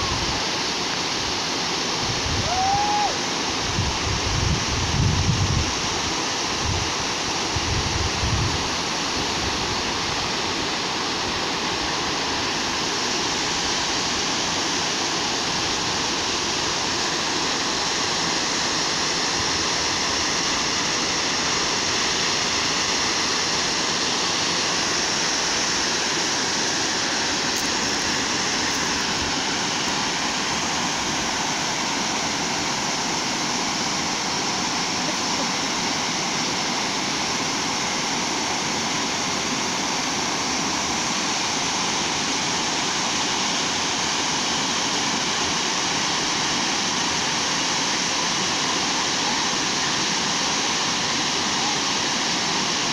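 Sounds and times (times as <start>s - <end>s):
waterfall rushing: 0.0s - 52.9s.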